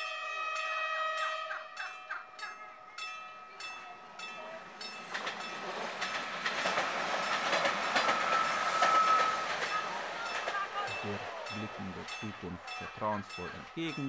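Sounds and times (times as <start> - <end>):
level-crossing warning bell: 0.0 - 14.0.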